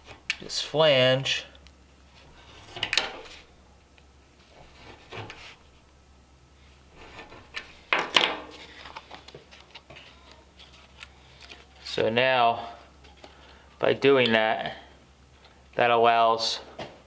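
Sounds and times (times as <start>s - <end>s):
cardboard clicks and rustles: 7.2s - 11.9s.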